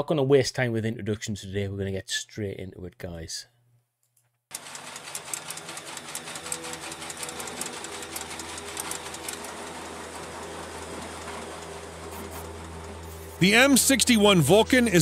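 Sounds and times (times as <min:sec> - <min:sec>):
rapid irregular clatter: 0:04.5 - 0:14.0
feed machinery whirring: 0:04.5 - 0:15.0.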